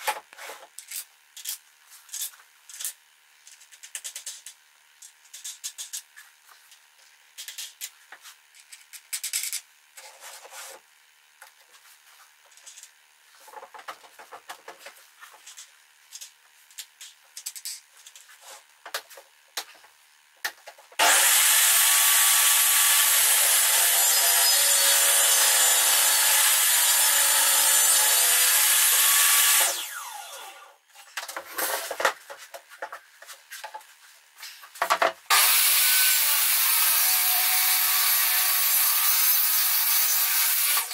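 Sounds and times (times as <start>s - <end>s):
table saw running: 21.0s - 30.8s, 35.3s - 40.9s.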